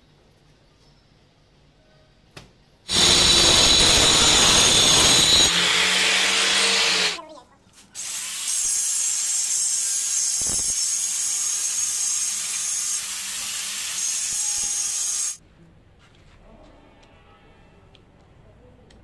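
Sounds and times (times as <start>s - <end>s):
angle grinder grinding stone: 2.9s - 7.2s, 8.0s - 15.4s.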